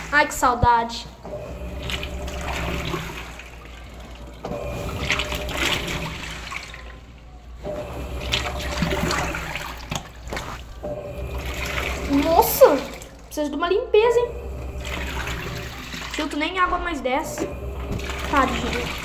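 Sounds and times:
washing machine churning water: 0.0s - 19.0s
washing machine motor humming: 0.0s - 19.0s.

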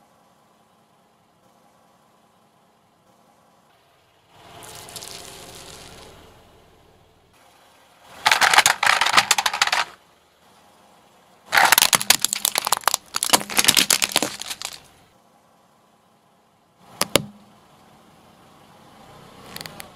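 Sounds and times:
plastic toy cracking under tyre: 8.2s - 9.9s, 11.5s - 14.9s
tyre crushing brittle objects: 8.2s - 10.0s, 11.5s - 14.9s.

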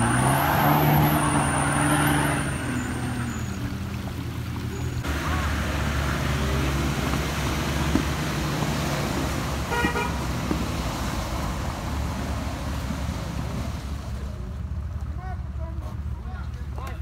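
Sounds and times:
horn toot: 9.6s - 10.3s.

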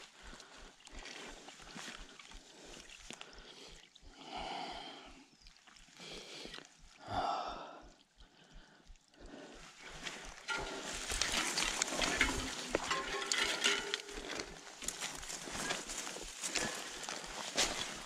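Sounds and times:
bike tyres crackling over leaves: 10.0s - 18.0s
bike rattling: 10.5s - 18.0s.

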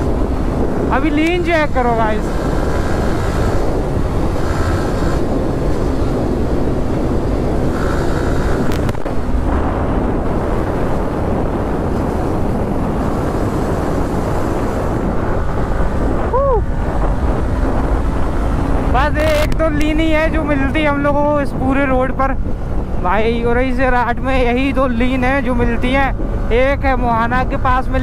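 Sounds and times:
motorcycle engine running: 0.0s - 20.0s
tyre road noise: 0.0s - 28.0s
wind on microphone: 0.0s - 28.0s.

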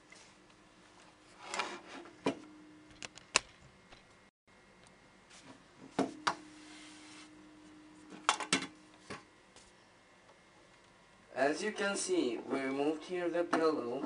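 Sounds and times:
scraping rub: 6.5s - 7.3s.

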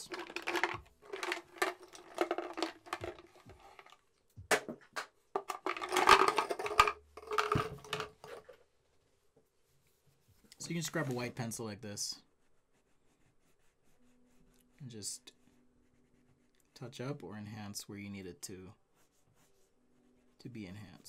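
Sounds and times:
pens and pencils clattering on desk: 0.0s - 8.6s.

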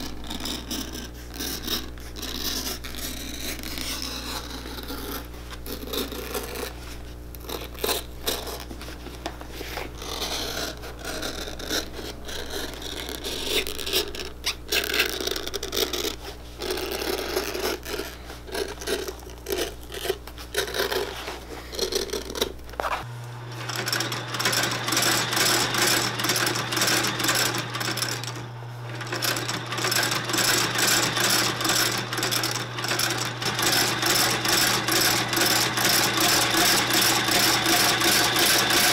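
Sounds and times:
knife cutting leather sole: 0.0s - 23.1s
machine clattering: 23.6s - 38.9s.

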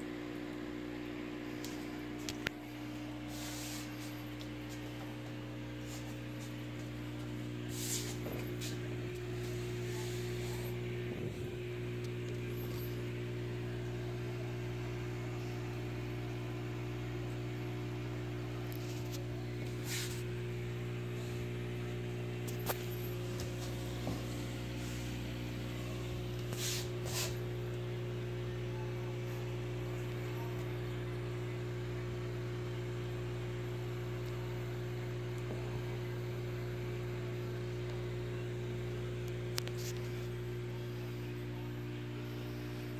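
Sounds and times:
air pump humming: 0.0s - 33.4s.

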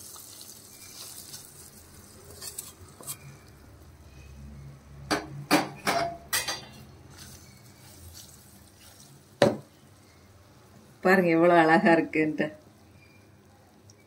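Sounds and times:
spatula stirring rice: 0.0s - 3.7s, 6.7s - 10.3s.

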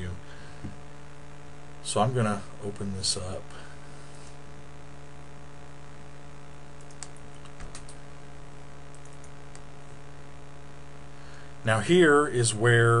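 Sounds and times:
electrical mains hum: 0.0s - 13.0s
light computer clicks: 6.8s - 8.0s, 8.9s - 9.7s.

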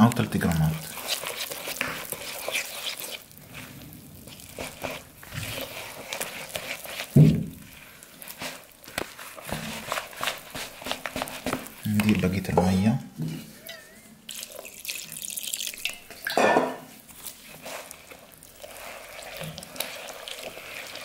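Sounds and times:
whisk clicking and scraping bowl: 0.0s - 12.8s, 17.1s - 21.0s
thump: 7.2s - 7.5s.

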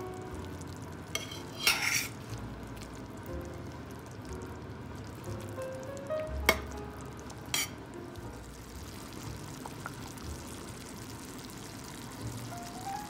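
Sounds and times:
sauce bubbling and sizzling in a pan: 0.0s - 13.0s
metal spoon clinking on pan: 1.1s - 2.2s, 7.5s - 7.8s
spoon scraping pan: 1.2s - 2.3s, 7.6s - 7.8s.

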